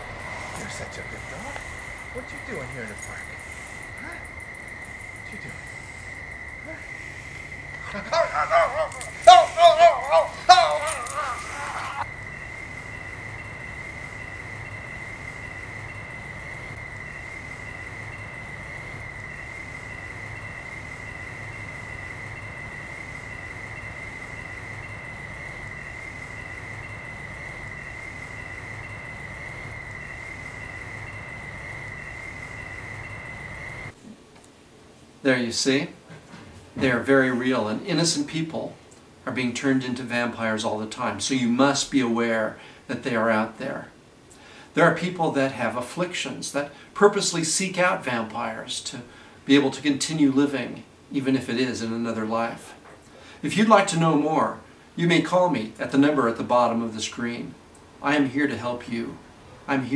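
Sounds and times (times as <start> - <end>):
low rumble: 0.0 - 7.9
insect trill: 0.0 - 34.0, 36.8 - 59.9
faint hiss: 0.0 - 59.9
person crying out: 7.8 - 12.0.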